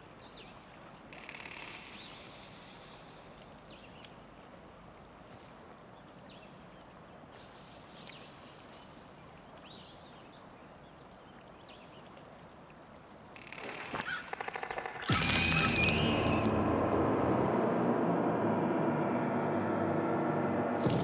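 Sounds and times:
outdoor ambience hiss: 0.0 - 17.5
buzzing rattle of rapid pulses: 1.2 - 3.4.

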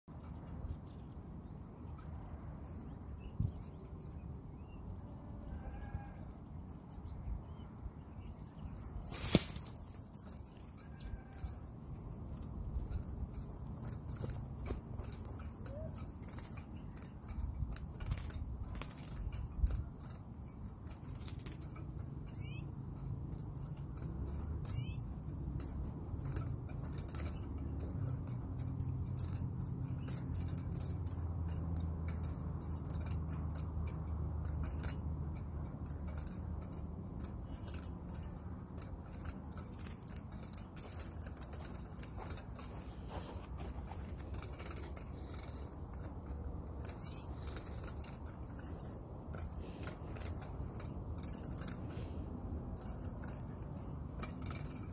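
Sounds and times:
small bird chirping trills: 0.0 - 52.0
net clicking and rustling: 9.0 - 22.4, 23.0 - 54.9.

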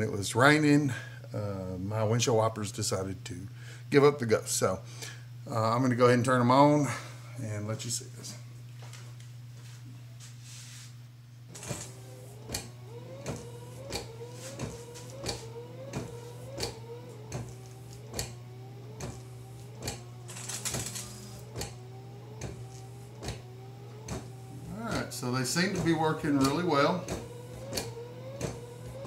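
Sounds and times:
wiper motor whining: 11.4 - 29.0.

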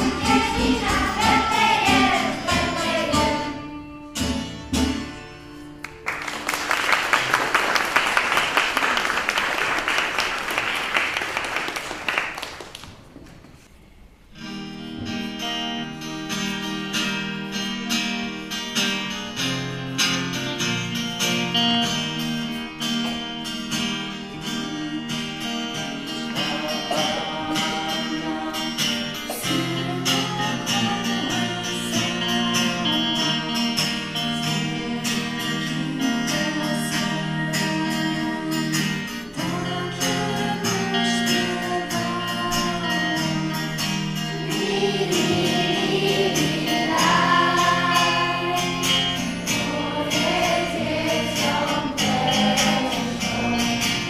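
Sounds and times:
acoustic guitar strumming: 0.0 - 9.4, 14.3 - 54.0
audience applause: 5.8 - 13.3
person singing: 24.2 - 54.0.

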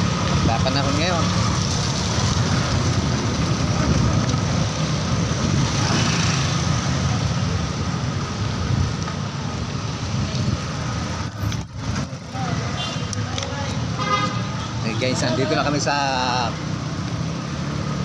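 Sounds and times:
city traffic: 0.0 - 18.0
wind rumble on microphone: 1.4 - 6.2.

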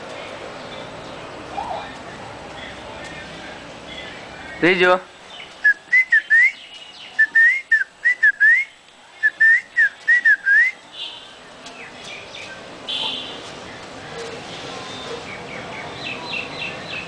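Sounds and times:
person whistling: 5.7 - 6.6, 7.2 - 10.8.

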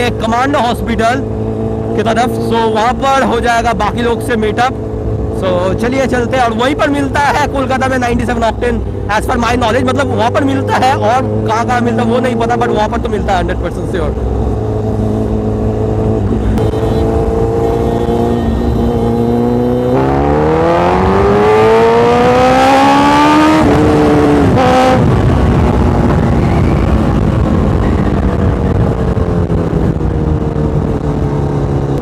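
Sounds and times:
motorcycle engine revving: 0.0 - 32.0
wind rush: 20.4 - 32.0.

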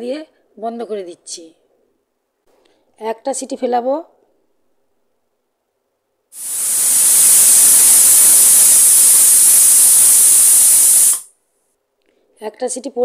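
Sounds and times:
pressure cooker hissing steam: 6.4 - 11.3.

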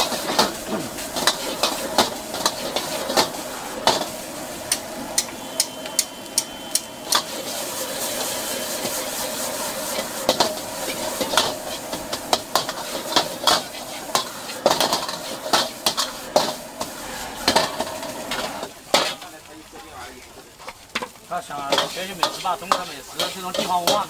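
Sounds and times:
food sizzling: 0.0 - 24.0
metal ladle clanking on a wok: 21.7 - 24.0.

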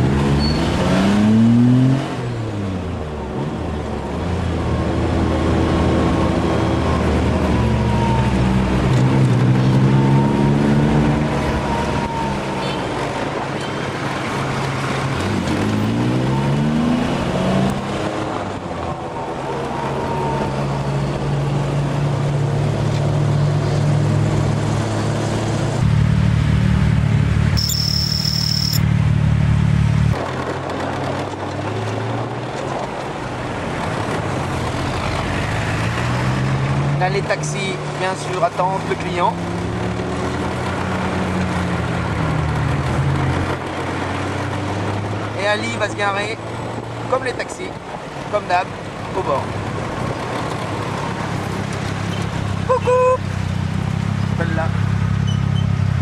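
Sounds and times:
vehicle engine running: 25.8 - 30.2
short high-pitched tone: 27.6 - 28.9.

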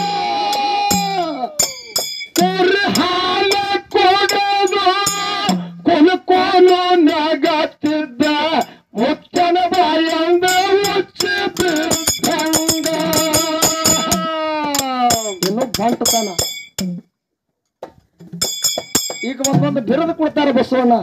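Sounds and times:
man singing into a microphone: 0.0 - 1.7, 2.4 - 16.0
sharp percussion strikes: 0.0 - 5.8, 9.4 - 17.0, 18.4 - 20.0.

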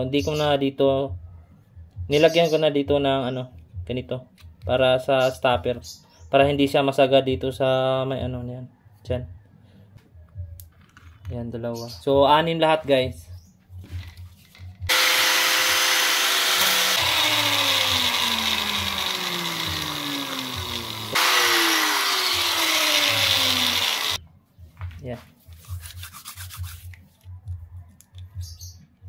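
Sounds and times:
cutting tool cutting plastic pipe: 14.9 - 24.2.

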